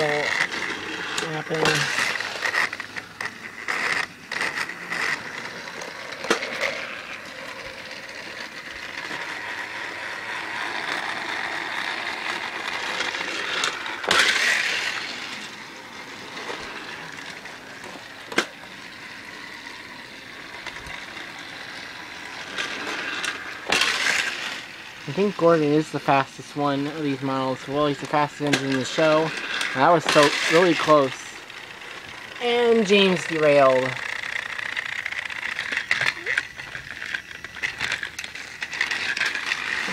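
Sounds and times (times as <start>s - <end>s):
loud clatter: 0.0s - 18.6s, 19.4s - 24.8s
toy train motor whirring: 0.0s - 39.9s
track rattle: 0.0s - 39.9s.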